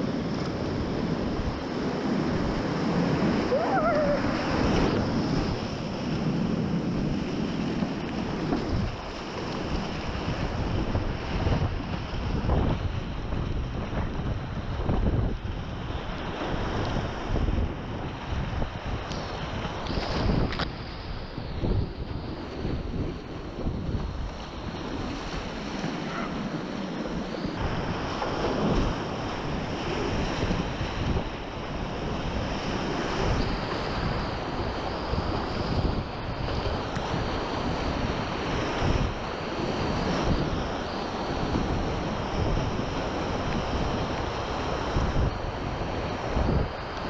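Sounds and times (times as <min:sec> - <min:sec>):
water and wind buffeting microphone: 0:00.0 - 0:47.0
whitewater rapids rushing: 0:03.0 - 0:05.0.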